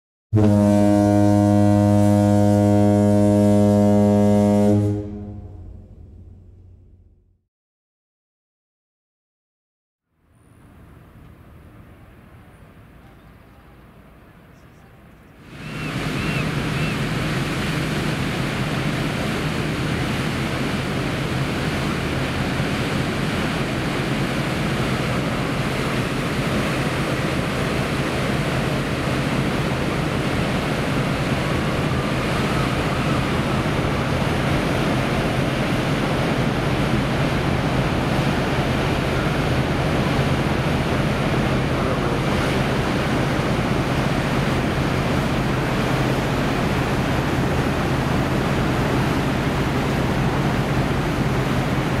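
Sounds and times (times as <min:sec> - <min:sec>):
ship engines humming: 0:00.4 - 0:07.2, 0:10.2 - 0:52.0
propeller wash churning water: 0:15.4 - 0:52.0.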